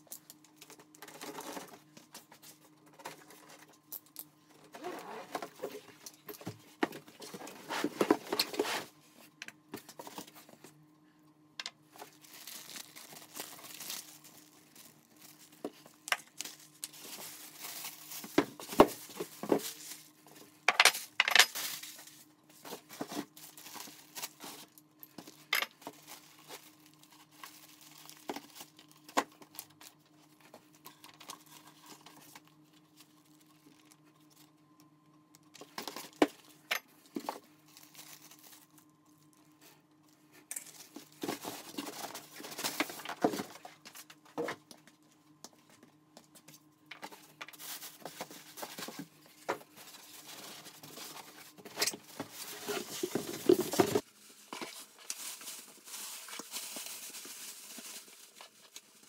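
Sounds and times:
faint steady hum: 0.0 - 59.0
plastic bags crinkling: 11.9 - 30.0, 37.2 - 38.9, 49.8 - 59.0.

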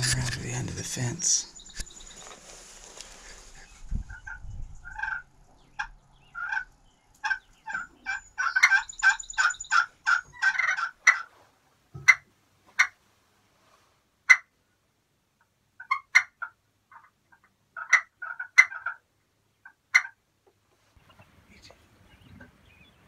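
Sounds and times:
turkey call notes: 4.1 - 11.3.

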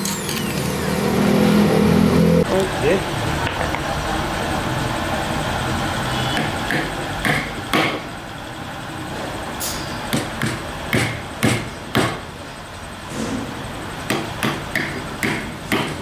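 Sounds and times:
hammer knocking on wooden block: 6.4 - 8.0, 10.1 - 12.2, 14.1 - 16.0.

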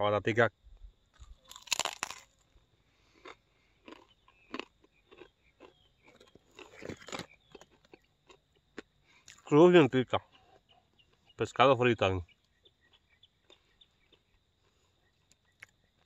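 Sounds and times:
person crunching fried chips: 1.3 - 9.4.

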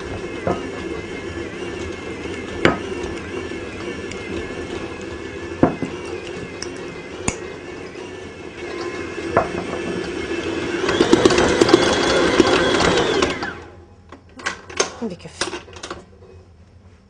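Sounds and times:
stand mixer motor running: 0.0 - 13.7.

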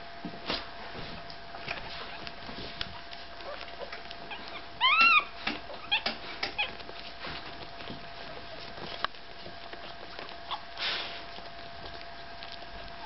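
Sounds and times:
puppy whimpering: 1.7 - 13.0
puppy squeaks: 3.3 - 7.1, 9.8 - 10.8.

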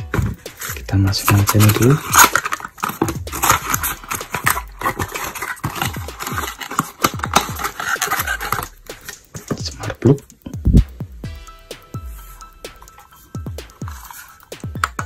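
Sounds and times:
cardboard box rustling and scraping: 0.0 - 9.8, 13.0 - 15.0.

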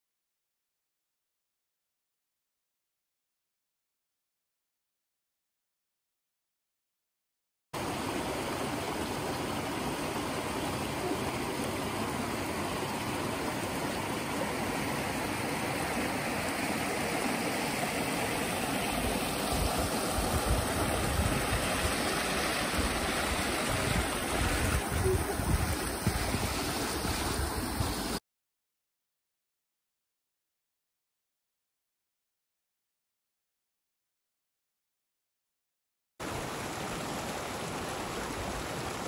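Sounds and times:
stream rushing over rocks: 7.8 - 28.2, 36.2 - 39.0
wind buffeting microphone: 19.5 - 21.9, 22.7 - 28.1.

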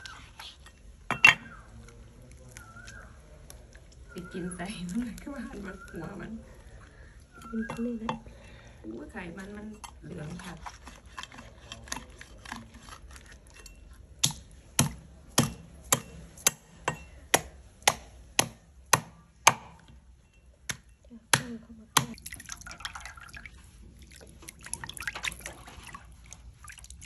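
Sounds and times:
meat cleaver chopping on wood: 14.2 - 16.6
water splashing in a basin: 22.0 - 27.0.

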